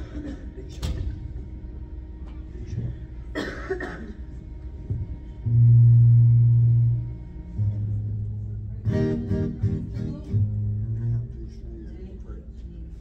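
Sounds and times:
person coughing: 0:00.0 - 0:00.7, 0:03.2 - 0:04.4
low held musical note: 0:05.4 - 0:11.7.

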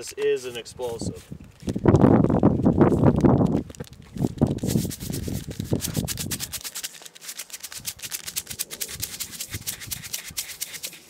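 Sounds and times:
granules rattling in plastic jar: 0:03.1 - 0:10.5.

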